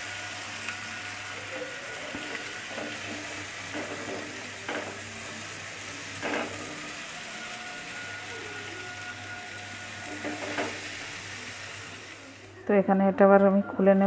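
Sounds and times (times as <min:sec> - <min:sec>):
vegetables sizzling in frying pan: 0:00.0 - 0:12.6
spatula scraping pan: 0:08.8 - 0:11.0.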